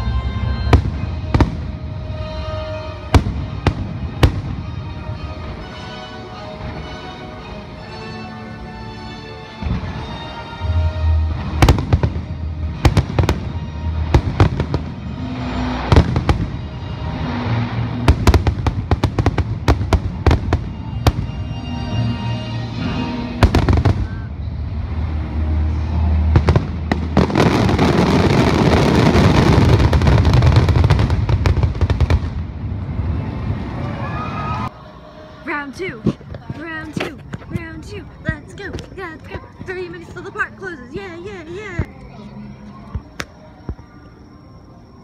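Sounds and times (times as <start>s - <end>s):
music: 0.0s - 45.0s
fireworks bursting: 0.5s - 5.7s, 11.3s - 22.2s, 23.0s - 33.9s.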